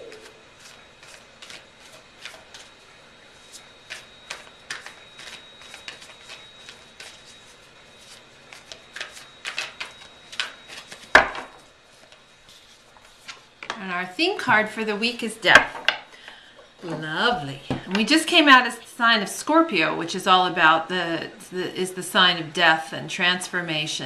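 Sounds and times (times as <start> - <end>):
cards being shuffled: 0.1 - 2.7, 3.4 - 13.5.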